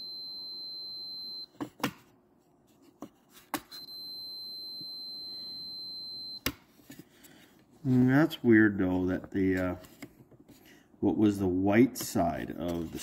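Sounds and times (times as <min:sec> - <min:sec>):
multimeter continuity beep: 0:00.0 - 0:01.5, 0:03.8 - 0:06.5.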